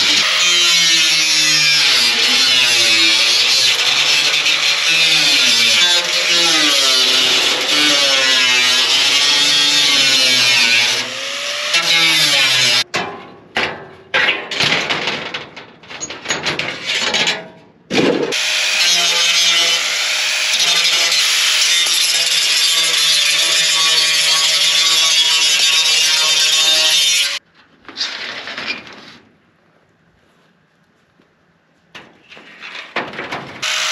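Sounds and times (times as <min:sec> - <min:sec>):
angle grinder cutting sheet metal: 0:00.0 - 0:12.8, 0:18.2 - 0:27.4, 0:33.6 - 0:33.9.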